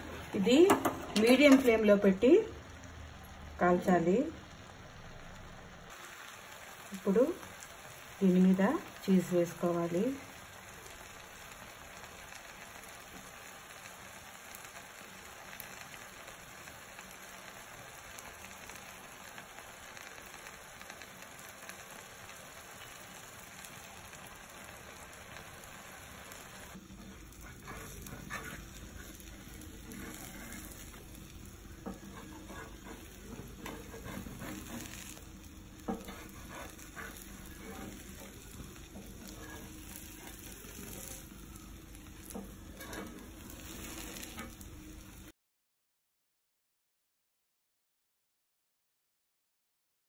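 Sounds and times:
omelette sizzling in a pan: 0.0 - 45.3
metal spatula scraping: 27.0 - 31.2, 31.8 - 41.3, 42.2 - 44.6.

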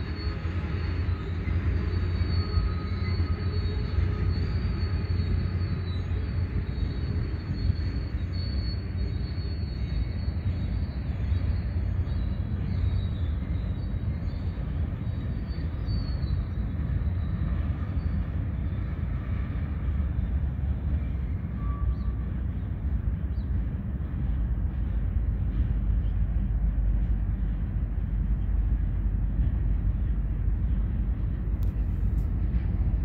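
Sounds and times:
high wheel squeal: 0.0 - 19.5, 20.9 - 22.4
train wheels rumbling on rail: 0.0 - 33.0.

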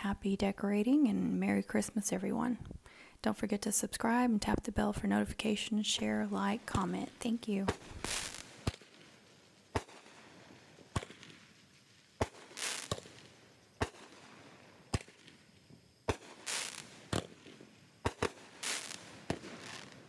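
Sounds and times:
fireworks bangs: 6.0 - 20.0
fireworks crackling hiss: 6.0 - 20.0.

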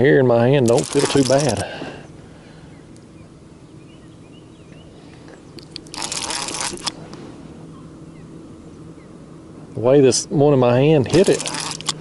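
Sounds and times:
faint low hum: 0.0 - 12.0
fishing reel ratcheting: 0.6 - 1.6, 5.7 - 7.0, 11.1 - 12.0.

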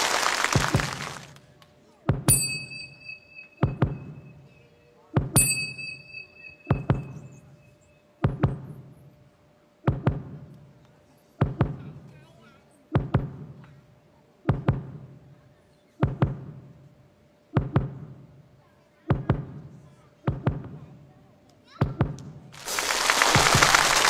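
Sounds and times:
applause: 0.0 - 1.4, 22.6 - 24.0
bright ringing tone: 2.3 - 4.8, 5.4 - 8.1
balls thudding on drums: 8.2 - 8.7, 9.9 - 10.4, 11.4 - 11.8, 13.0 - 13.5, 14.5 - 15.0, 16.0 - 16.6, 17.6 - 18.2, 20.3 - 20.8.

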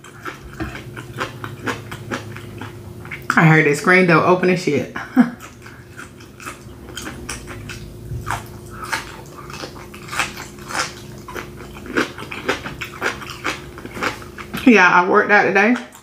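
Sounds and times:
chewing crunches: 0.0 - 3.4, 5.3 - 14.7.

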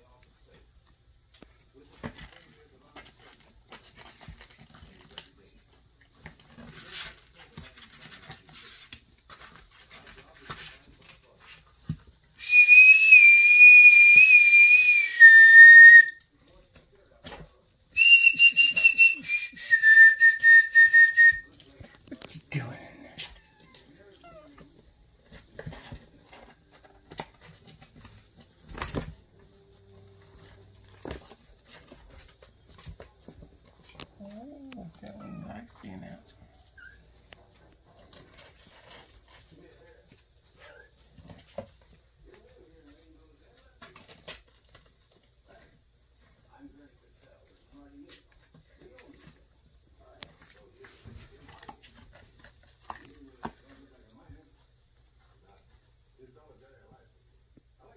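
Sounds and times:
kittens eating dry kibble: 0.0 - 12.0, 21.5 - 56.9
kittens moving on cardboard: 0.3 - 12.4, 23.0 - 35.0, 36.4 - 56.0
paper rustle: 1.8 - 12.2.

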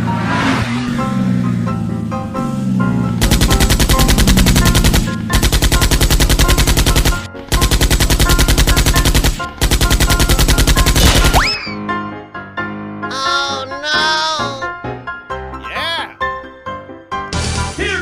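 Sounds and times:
rapid-fire gunfire bursts: 3.2 - 11.5.

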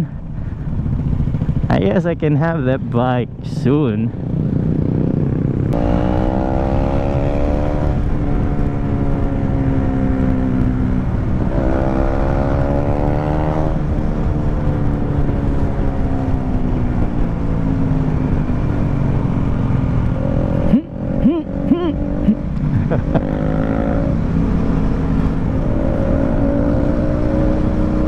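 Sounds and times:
motorcycle engine revving: 0.0 - 2.1, 3.7 - 28.0
wind rumble on microphone: 3.2 - 21.2.

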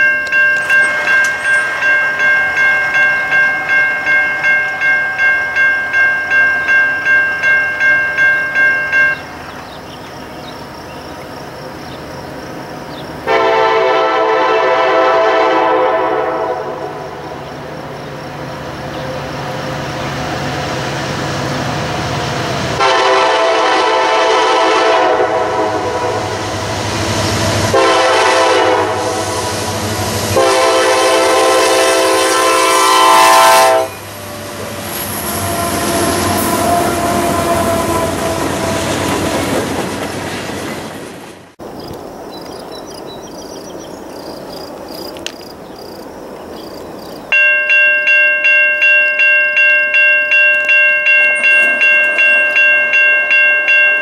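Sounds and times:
wheels clicking over rail joints: 0.0 - 4.9, 48.7 - 54.0
train rolling past: 0.0 - 54.0
locomotive air horn: 13.3 - 17.2, 22.8 - 26.7, 27.6 - 34.0, 35.1 - 39.2.

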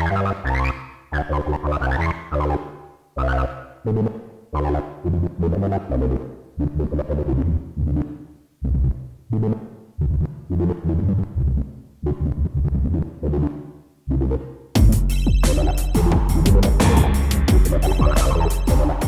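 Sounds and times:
synthesizer bass line: 0.0 - 19.0
drum machine beat: 14.8 - 19.0.

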